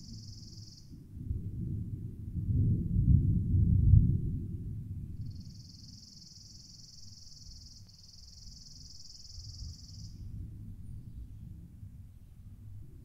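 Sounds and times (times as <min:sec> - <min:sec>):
high-pitched insect trill: 0:00.0 - 0:00.9, 0:05.2 - 0:10.2
faint low rumble: 0:00.0 - 0:13.0.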